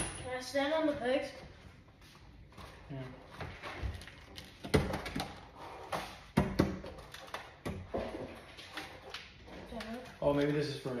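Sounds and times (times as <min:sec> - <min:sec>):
parts and packaging handled: 0:02.6 - 0:11.0.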